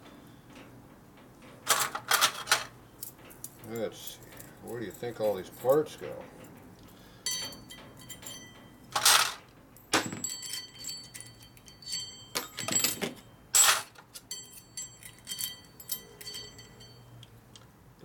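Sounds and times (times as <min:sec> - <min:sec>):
metal parts clinking and rattling: 0:01.6 - 0:06.6, 0:07.3 - 0:17.1
high metal ringing: 0:07.2 - 0:09.2, 0:10.0 - 0:17.3.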